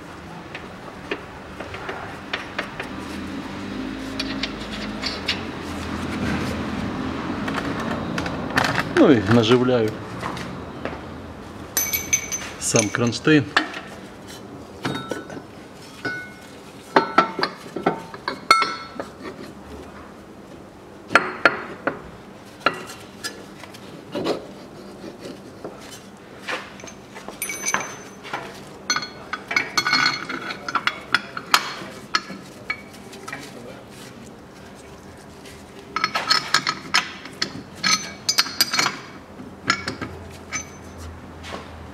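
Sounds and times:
metal bracket and bolts clinking: 11.8s - 13.8s, 14.8s - 15.4s, 16.0s - 19.1s, 26.6s - 33.4s, 36.0s - 41.0s.

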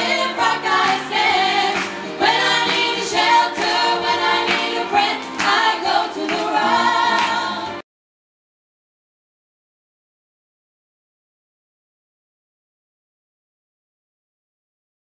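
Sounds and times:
women singing in harmony: 0.0s - 7.8s.

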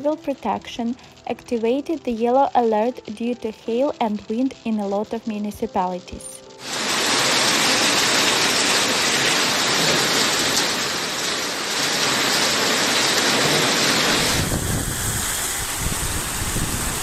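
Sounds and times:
heavy rain and hail on cars: 6.6s - 17.0s.

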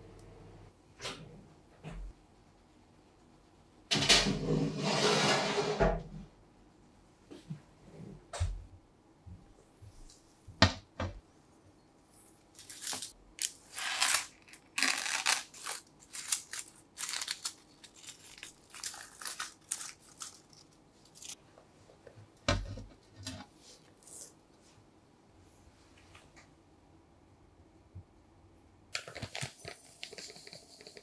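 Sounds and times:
parchment paper crinkling: 12.5s - 21.4s.

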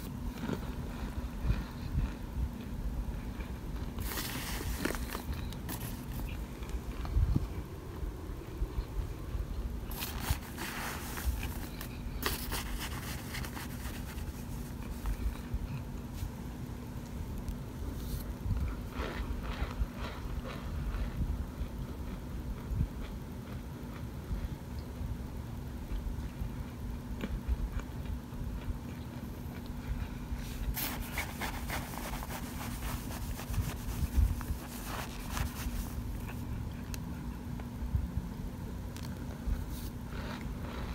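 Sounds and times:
crunchy chunks crackling: 0.0s - 17.6s, 18.2s - 24.1s, 25.9s - 37.0s
plastic spoon scraping a pan: 9.9s - 15.2s, 30.5s - 36.0s.

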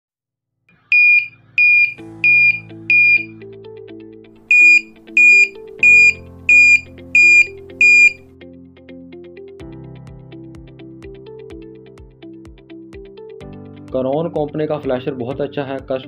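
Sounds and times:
background music: 0.8s - 16.0s
shrill flasher beeps: 0.9s - 3.3s, 4.5s - 8.2s.

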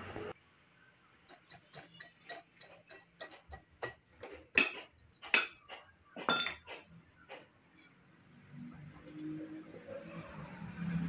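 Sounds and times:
metal tool clicks and taps: 1.3s - 4.0s.

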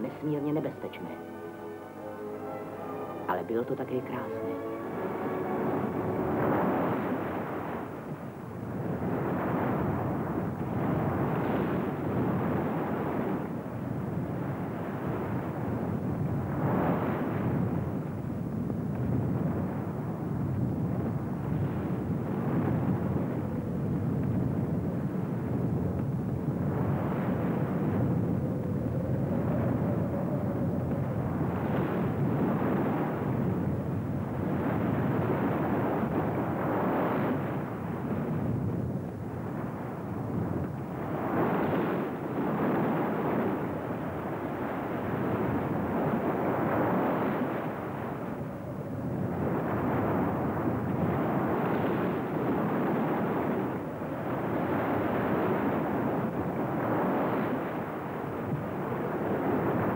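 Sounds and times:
heavy rushing water: 0.9s - 8.6s.

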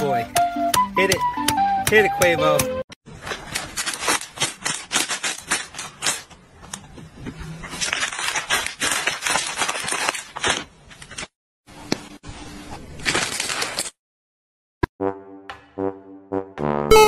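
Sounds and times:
plastic packaging crinkling: 3.1s - 6.3s, 7.6s - 11.3s, 12.9s - 14.0s.

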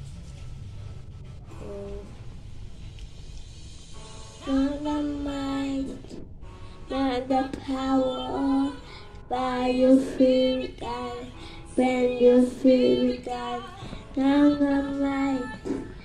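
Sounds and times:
child singing into microphone: 4.4s - 6.2s, 6.9s - 16.0s.

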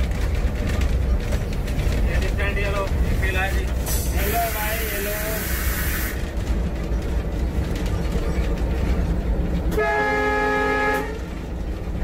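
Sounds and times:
locomotive engine rumble: 0.0s - 12.0s
locomotive horn blast: 9.7s - 11.5s.

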